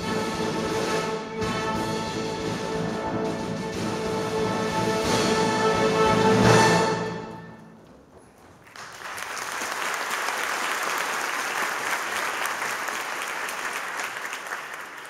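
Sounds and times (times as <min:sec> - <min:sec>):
audience applauding: 0:08.4 - 0:15.0.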